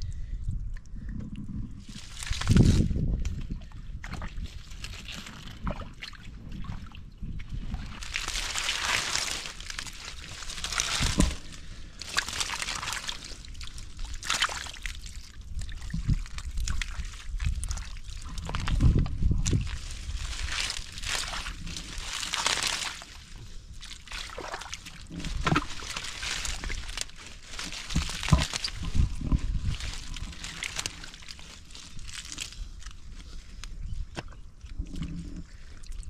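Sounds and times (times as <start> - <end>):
hands splashing in shallow water: 4.0 - 32.6.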